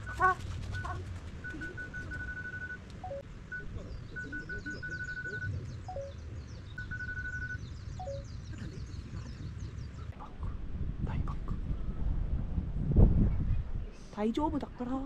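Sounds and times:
high-pitched beeps: 0:00.8 - 0:06.2, 0:06.8 - 0:08.3
faint high chirping: 0:00.8 - 0:09.0.

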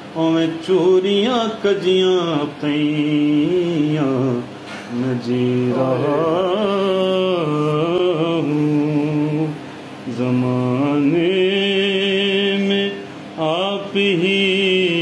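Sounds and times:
man singing devotional verse: 0:00.0 - 0:15.0.

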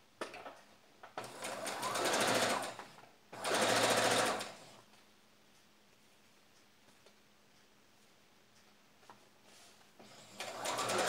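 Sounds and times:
sewing machine stitching: 0:01.2 - 0:04.6, 0:10.0 - 0:11.0.

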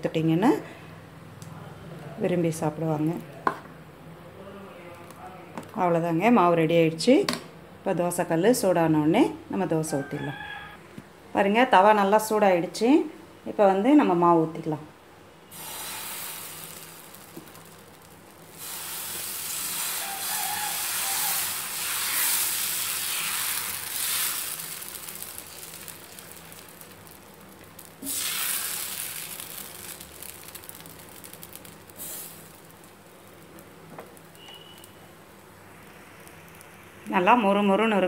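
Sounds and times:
batter sizzling on a hot pan: 0:15.5 - 0:37.4.

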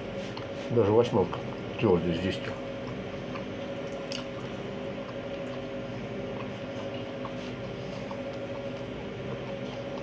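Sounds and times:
steady hum: 0:00.0 - 0:10.0
wet squishy chewing: 0:02.4 - 0:10.0.

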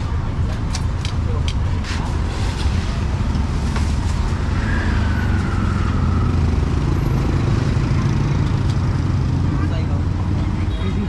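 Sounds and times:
street traffic: 0:00.0 - 0:11.0
motorbike engines running: 0:03.3 - 0:11.0.

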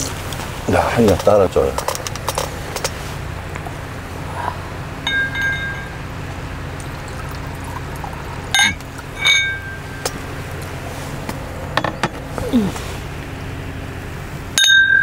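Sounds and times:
steady low hum: 0:00.0 - 0:14.6
glasses clinking: 0:05.0 - 0:10.7, 0:14.6 - 0:15.0
wine pouring into a glass: 0:06.7 - 0:09.9.

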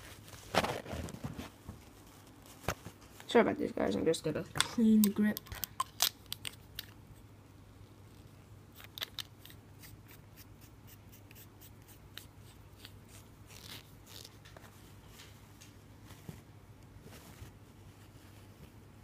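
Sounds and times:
tissue paper rustling: 0:16.0 - 0:19.0.

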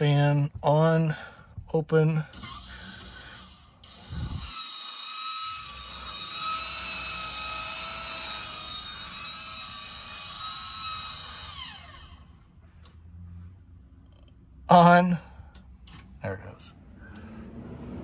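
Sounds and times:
motorised vent lid whining: 0:02.4 - 0:12.3.

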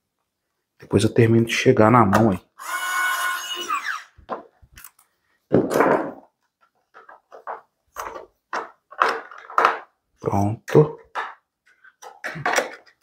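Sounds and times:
electric screwdriver motor whining: 0:02.6 - 0:04.2.

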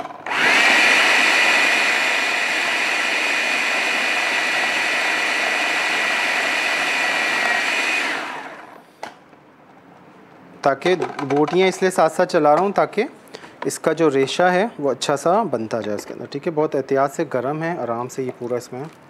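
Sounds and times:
food chopper motor whine: 0:00.0 - 0:08.8.

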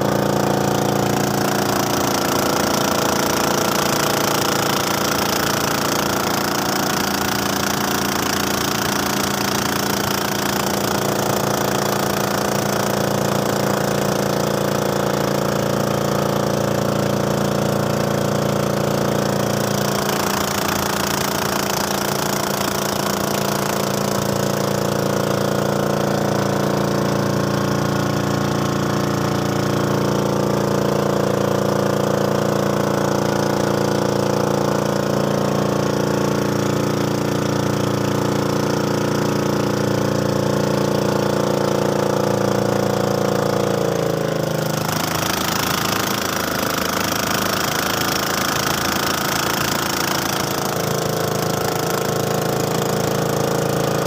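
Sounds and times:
motorboat engine running: 0:00.0 - 0:54.0
water rushing past hull: 0:00.0 - 0:54.0.

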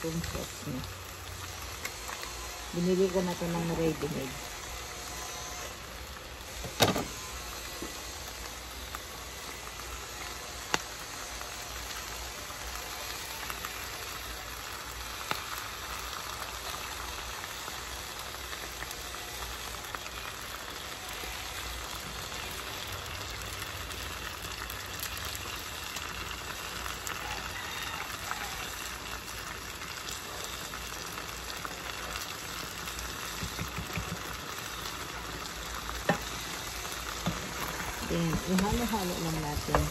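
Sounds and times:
food sizzling in a frying pan: 0:00.0 - 0:39.9.

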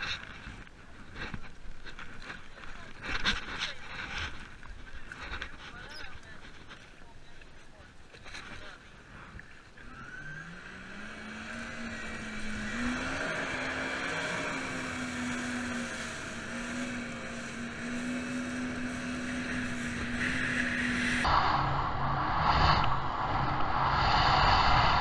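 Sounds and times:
boat engine revving: 0:09.8 - 0:21.3.

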